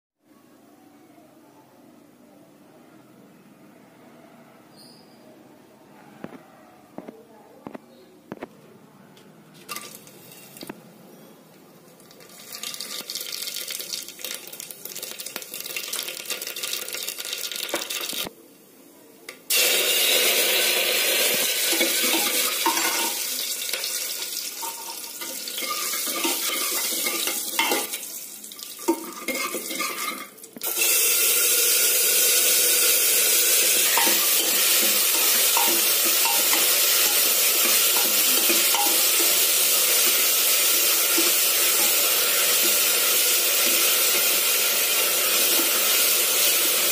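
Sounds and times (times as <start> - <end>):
vegetables frying hiss: 12.0 - 18.3, 19.5 - 46.9
food sizzling in hot oil: 12.1 - 18.3, 19.5 - 46.9
spatula scraping and knocking pot: 28.9 - 30.3.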